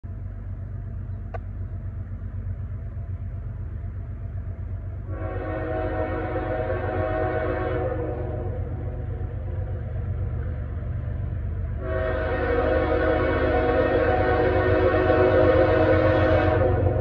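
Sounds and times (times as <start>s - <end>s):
diesel locomotive rumble: 0.0s - 17.0s
locomotive horn blast: 5.0s - 9.3s, 11.8s - 17.0s.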